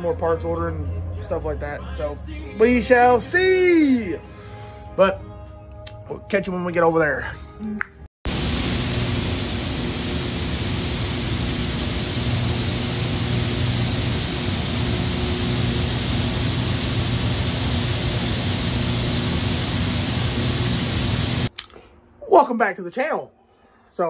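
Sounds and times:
low hum: 8.3s - 21.5s
machinery rushing noise: 8.3s - 21.5s.

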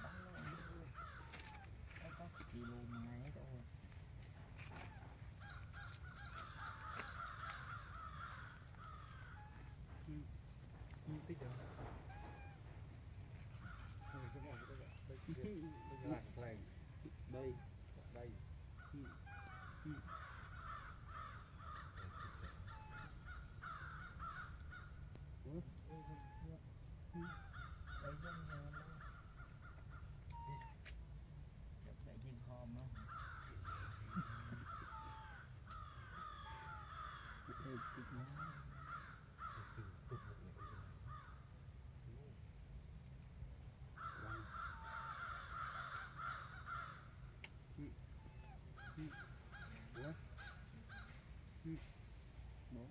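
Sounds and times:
rising and falling animal calls: 4.6s - 10.2s, 12.0s - 12.8s, 13.5s - 16.4s, 18.8s - 25.1s, 25.8s - 30.9s, 33.0s - 41.3s, 44.0s - 51.9s.

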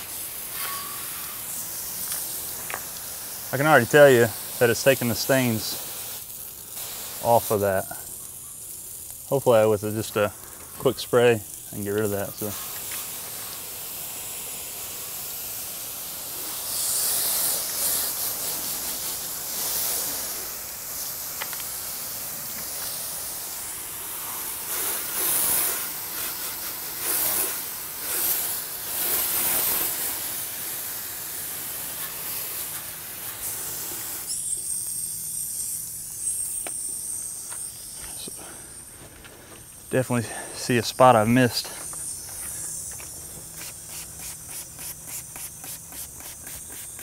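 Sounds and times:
hose spray nozzle hissing: 0.0s - 47.0s.

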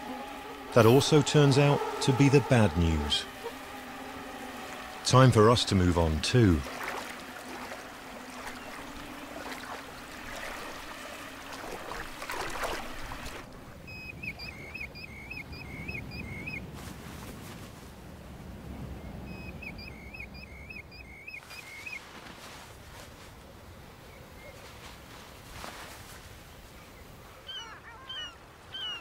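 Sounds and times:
water sloshing from wading: 0.0s - 14.8s
low wind rumble: 0.0s - 24.3s
bird chirping: 13.9s - 16.7s, 19.0s - 22.0s, 27.0s - 29.0s.

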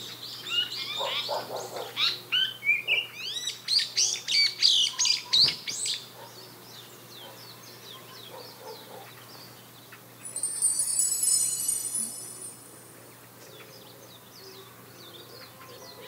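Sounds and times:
small birds chirping: 0.0s - 16.0s
high bright chiming tone: 10.2s - 13.3s.

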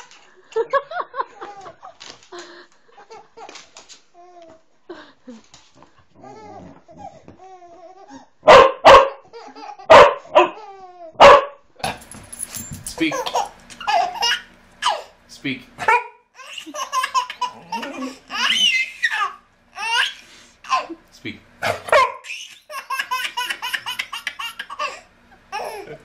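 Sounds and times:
dog barking: 8.4s - 9.2s, 9.9s - 10.6s, 11.2s - 11.6s, 15.8s - 16.2s, 21.6s - 22.3s
baby laughing: 9.3s - 11.2s, 13.0s - 15.2s, 16.4s - 21.0s, 21.8s - 26.0s.

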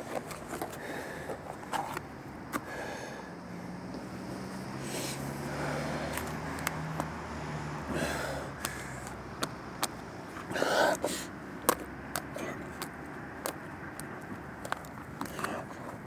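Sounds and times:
distant traffic hum: 0.0s - 16.0s
rustle: 3.6s - 7.1s.

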